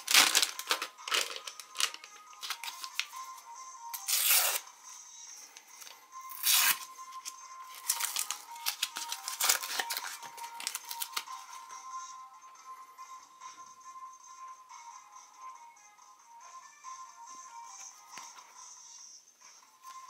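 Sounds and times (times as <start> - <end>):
paper wrapper ripping: 0.0 - 3.1, 4.0 - 4.6, 6.3 - 11.3
paper crinkling: 0.0 - 3.2, 5.8 - 11.6.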